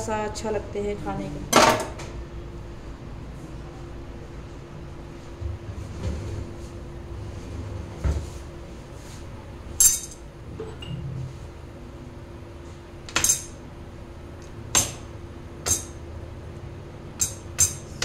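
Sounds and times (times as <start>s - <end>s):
metal utensils clinking: 9.8s - 10.2s.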